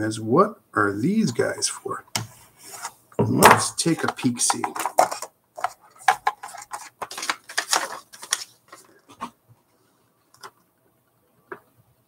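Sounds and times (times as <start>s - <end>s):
paper rustling and crinkling: 3.9s - 9.3s.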